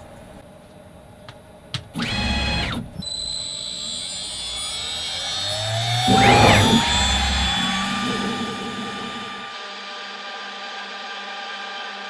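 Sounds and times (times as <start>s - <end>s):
machine motor movement: 2.0s - 9.5s
spindle motor whine: 2.0s - 10.0s.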